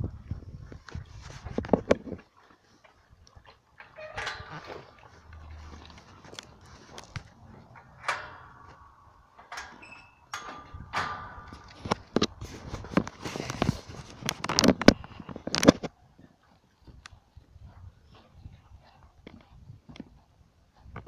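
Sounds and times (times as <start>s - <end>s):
wire-mesh gate rattling: 3.7s - 14.7s
gate squeaking: 3.8s - 12.4s.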